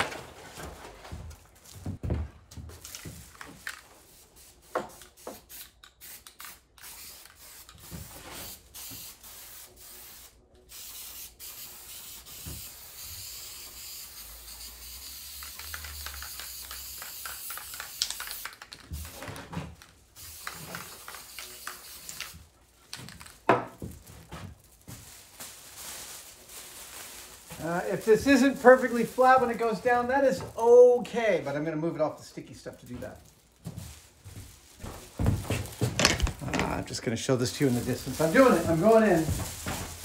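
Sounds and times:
aerosol spray hissing: 0:04.1 - 0:19.1, 0:20.2 - 0:22.4
emergency blanket crinkling: 0:22.5 - 0:31.5, 0:32.4 - 0:40.0.

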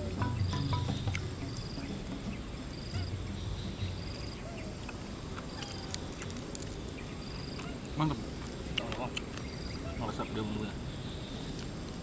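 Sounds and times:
high-pitched trilled chirp: 0:00.0 - 0:04.4
faint low animal calls: 0:00.0 - 0:06.3, 0:07.0 - 0:11.6
background hiss: 0:00.0 - 0:12.0.

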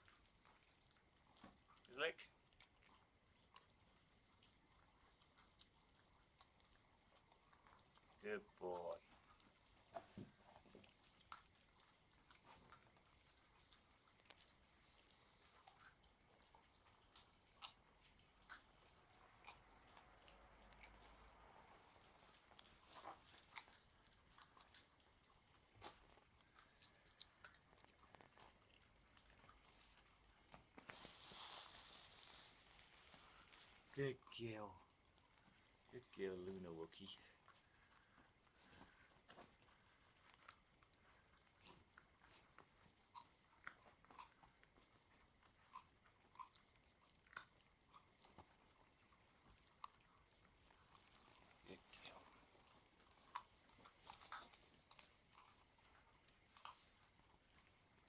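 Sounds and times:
puppies chewing bones: 0:00.0 - 0:58.0.

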